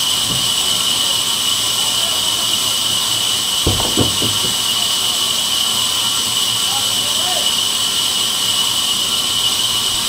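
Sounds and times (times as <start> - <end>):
band saw whining hiss: 0.0 - 10.0
dull thumps: 3.7 - 4.7.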